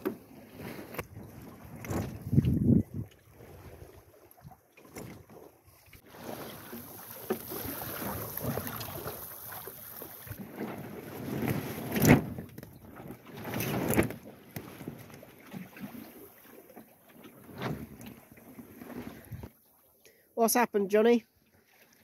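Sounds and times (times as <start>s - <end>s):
water splashing along hull: 0.0s - 20.0s, 21.3s - 22.0s
wind on microphone: 1.0s - 4.0s.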